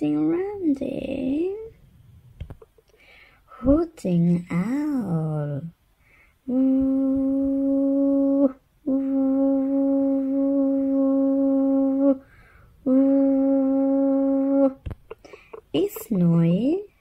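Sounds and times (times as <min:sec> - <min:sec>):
person imitating owl hoots: 0:06.5 - 0:16.1.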